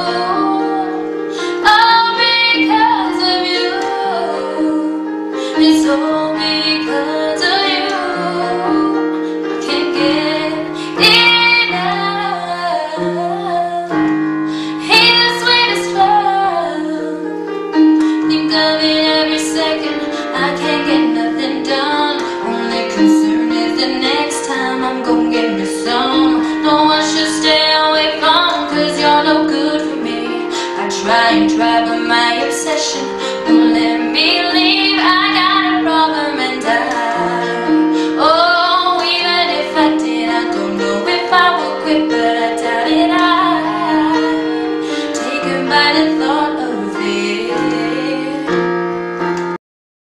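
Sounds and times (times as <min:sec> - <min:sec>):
woman singing a slow pop song: 0:00.0 - 0:17.3, 0:18.0 - 0:48.7
sustained keyboard chords: 0:00.0 - 0:49.6.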